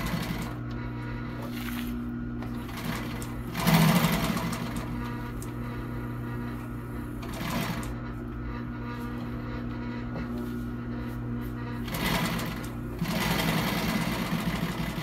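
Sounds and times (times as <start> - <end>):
sewing machine stitching: 0.0 - 0.6, 2.4 - 5.5, 7.2 - 8.0, 11.8 - 15.0
sewing machine motor humming: 0.0 - 15.0.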